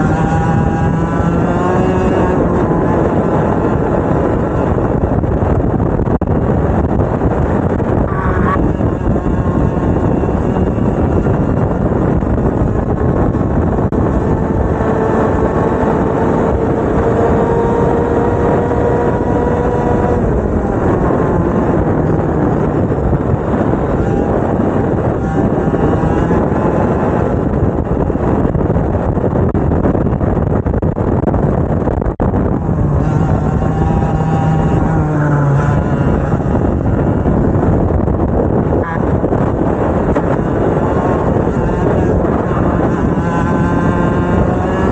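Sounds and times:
engine accelerating: 0.0s - 44.9s
racing kart engines: 32.4s - 44.9s.

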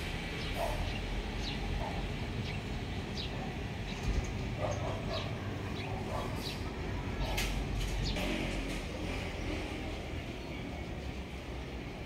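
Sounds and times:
outdoor rumble: 0.0s - 12.0s
dog barking: 0.6s - 1.0s, 1.8s - 2.1s, 4.6s - 6.5s.

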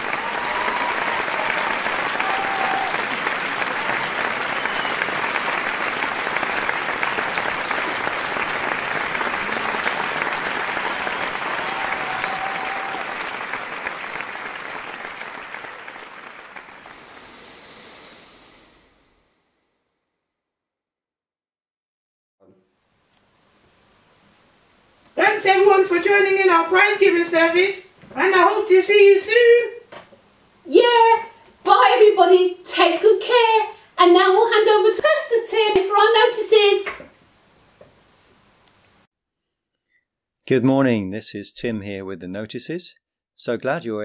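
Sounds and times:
audience applauding: 0.0s - 18.7s.

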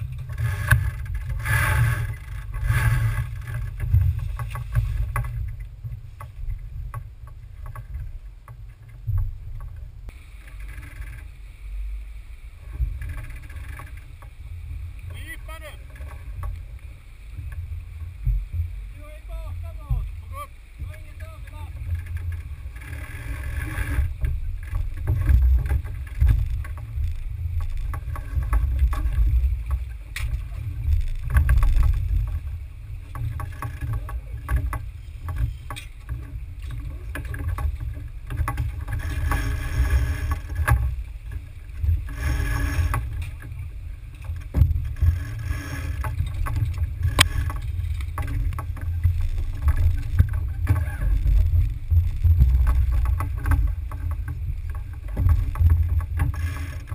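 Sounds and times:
wind and water rushing along hull: 0.0s - 56.9s
clicks and knocks of boat fittings: 0.1s - 9.9s, 21.8s - 56.9s.

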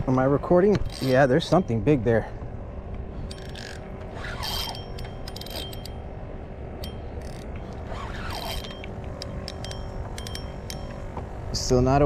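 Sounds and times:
fishing reel clicking and whirring: 0.8s - 1.6s, 3.3s - 6.0s, 6.8s - 10.8s.

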